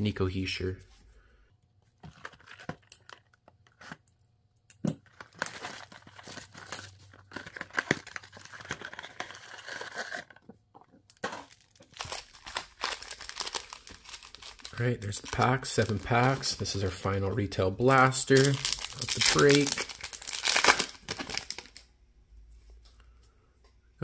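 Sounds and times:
cardboard tearing and crinkling: 5.1 - 10.4, 11.2 - 16.6, 18.3 - 21.8.

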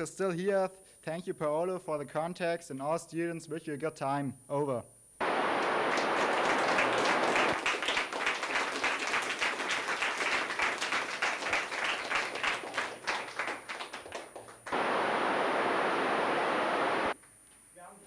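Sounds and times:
steady hiss: 5.2 - 7.6, 9.8 - 17.2
audience applauding: 5.2 - 15.3.

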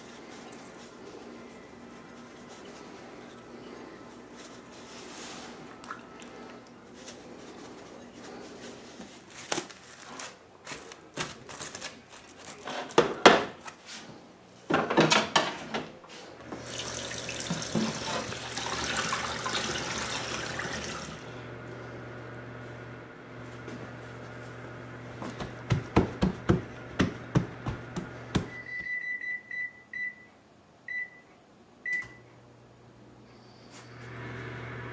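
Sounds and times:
foil crinkling: 6.9 - 13.8
tap water running: 16.5 - 21.4
kitchen handling knocks: 25.4 - 28.5.

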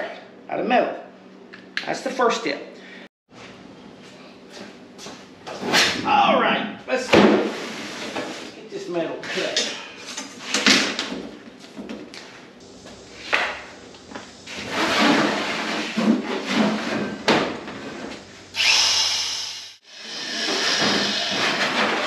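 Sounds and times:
power tool cutting sheet metal: 18.5 - 22.0.

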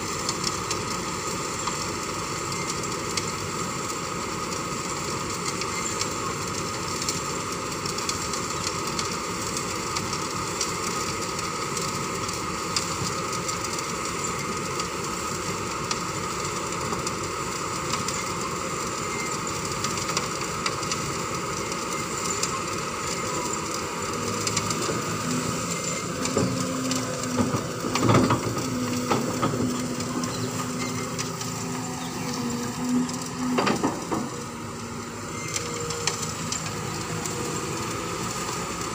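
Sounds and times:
excavator diesel engine running: 0.0 - 38.9.

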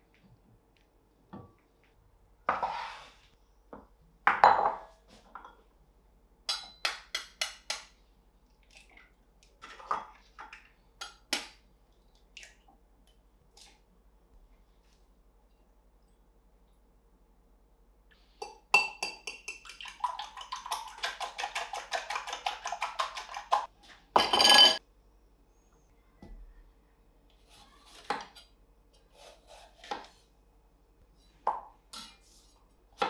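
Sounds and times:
glass bowl clinking: 24.2 - 24.8.

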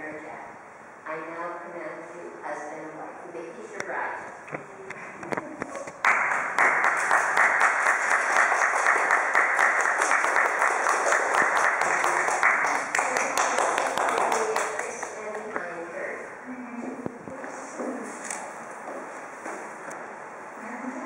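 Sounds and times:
audience applauding: 6.0 - 15.2
voices: 10.8 - 18.4.

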